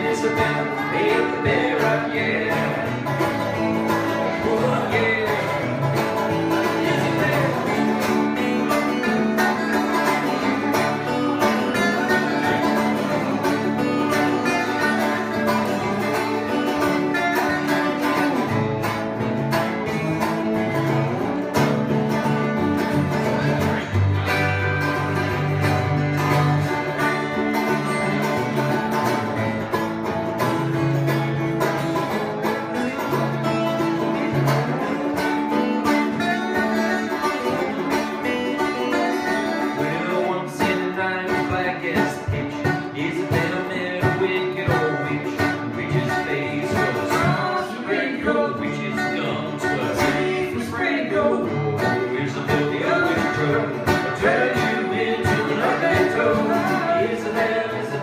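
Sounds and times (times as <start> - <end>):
people singing: 0.0 - 9.1, 39.6 - 58.0
banjo picking: 0.0 - 58.0
strummed acoustic guitars: 0.0 - 58.0.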